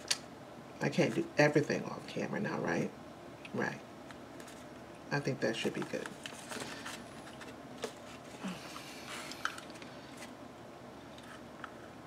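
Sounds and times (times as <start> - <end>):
paper rustling: 4.4 - 4.7, 5.6 - 10.4.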